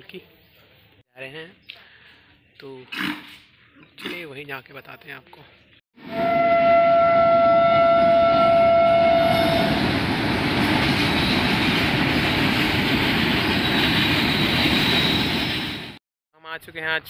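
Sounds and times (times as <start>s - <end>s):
locomotive horn: 6.0s - 9.9s
train wagons rumbling past: 7.6s - 16.0s.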